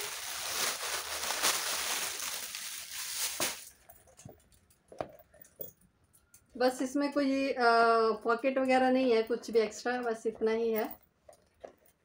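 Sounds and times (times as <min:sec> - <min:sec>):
plastic packaging crinkling: 0:00.0 - 0:03.8.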